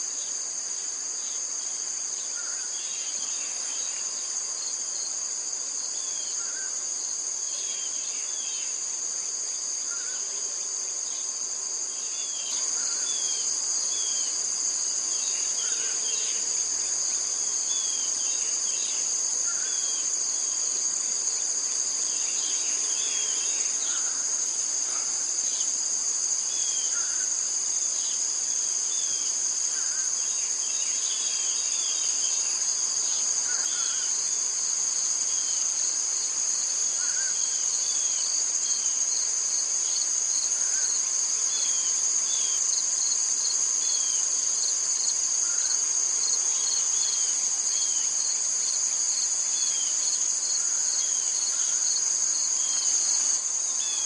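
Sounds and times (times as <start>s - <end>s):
crickets chirping: 0.0s - 54.0s.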